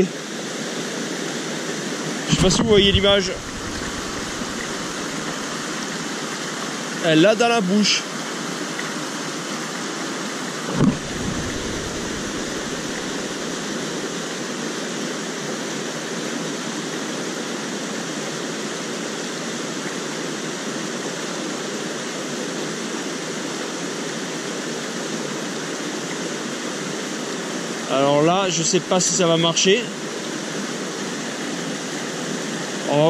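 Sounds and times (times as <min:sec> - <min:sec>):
stream rushing over rocks: 0:00.0 - 0:33.0
brief thump: 0:10.7 - 0:13.0.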